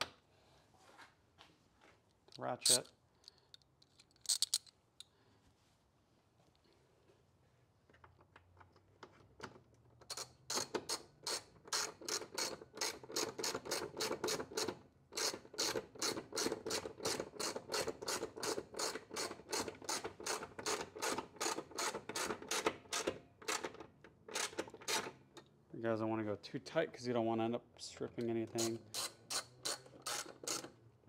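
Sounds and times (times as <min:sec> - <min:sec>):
ratchet pawl clicks: 0:28.6 - 0:30.7.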